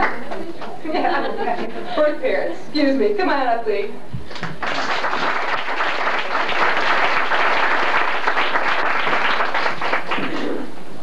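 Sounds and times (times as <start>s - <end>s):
audience applauding: 4.3s - 10.7s.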